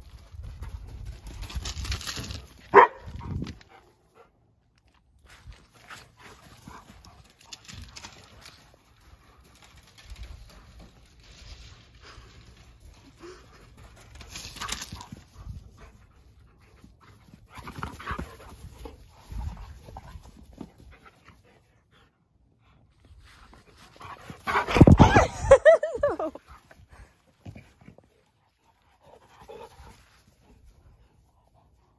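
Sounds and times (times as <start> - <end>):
rustling: 4.9 - 21.4.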